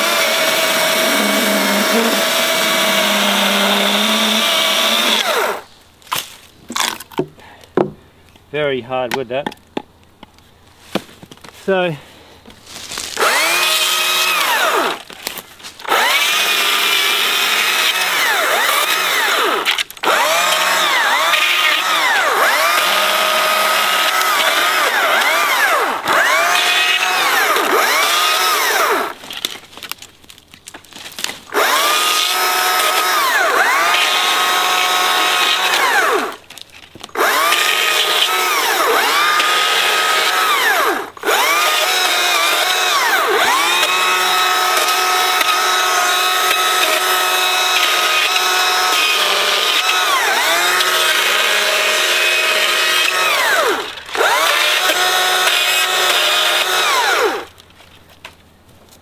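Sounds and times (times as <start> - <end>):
electric chainsaw cutting wood: 0.0 - 5.7, 13.2 - 15.1, 15.8 - 29.6, 31.5 - 36.4, 37.1 - 57.5.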